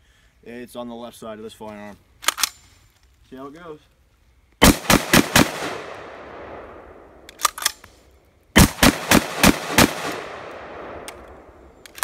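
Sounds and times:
rifle shots echoing: 4.6 - 7.8, 8.6 - 12.0
faint rifle clicks: 7.2 - 8.2, 10.0 - 12.0.

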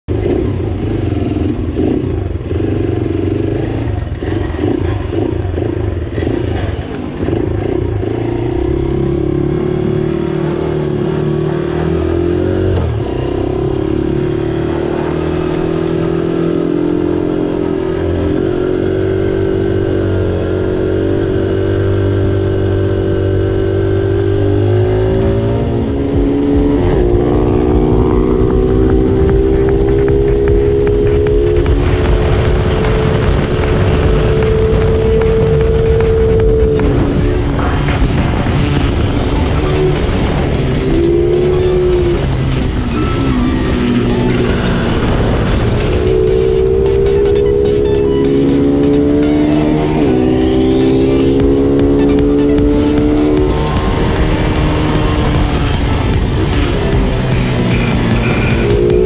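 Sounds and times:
racing motorcycle engines: 0.0 - 59.0.

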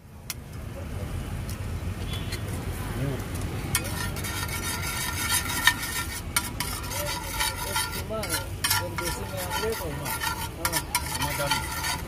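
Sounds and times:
metal spatula scraping: 3.7 - 12.0
spatula clinking on pan: 6.4 - 12.0.

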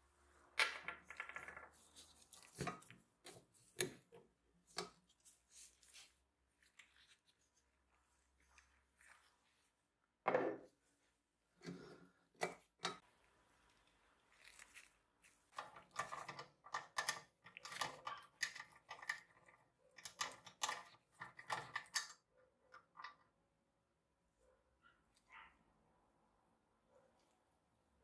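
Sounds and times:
metal clicks and rattles: 15.5 - 23.3.

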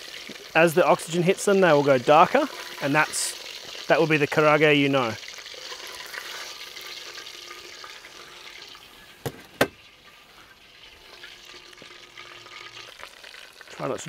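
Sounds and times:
chicken deep-frying in hot oil: 0.0 - 14.0.

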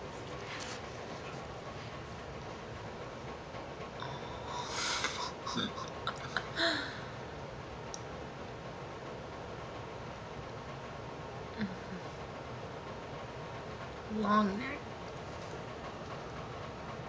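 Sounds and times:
faint room hiss: 0.0 - 17.0
breathy puff of air: 4.2 - 5.3.

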